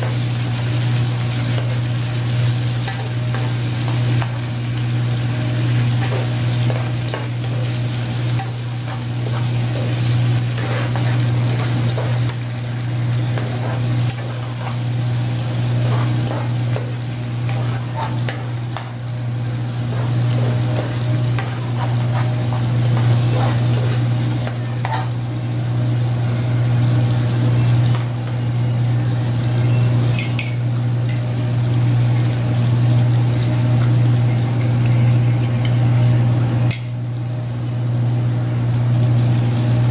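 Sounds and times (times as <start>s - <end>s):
sauce sizzling: 0.0s - 39.9s
steady low hum: 0.0s - 39.9s
metal spoon scraping a wok: 8.4s - 12.4s.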